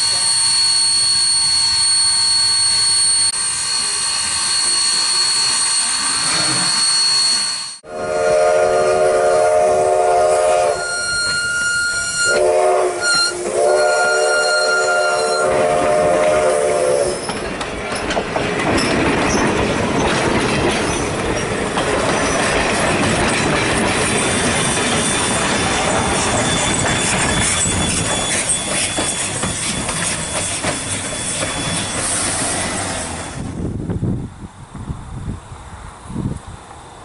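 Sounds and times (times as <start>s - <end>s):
steam locomotive whistle: 0.0s - 17.3s
train wheels on rails: 0.0s - 37.0s.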